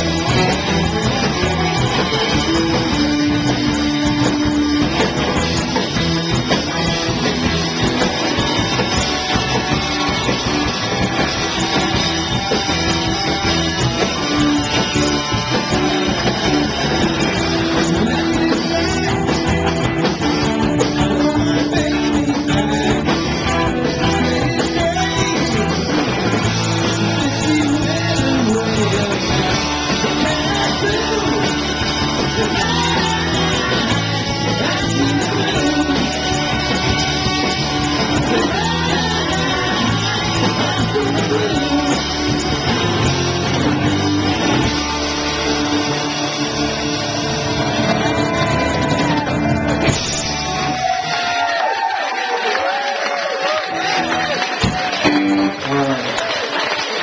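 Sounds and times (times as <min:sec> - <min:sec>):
man singing: 0:00.0 - 0:08.0, 0:13.2 - 0:43.4
bass guitar: 0:00.0 - 0:57.0
drums: 0:00.0 - 0:57.0
electric guitars: 0:00.0 - 0:57.0.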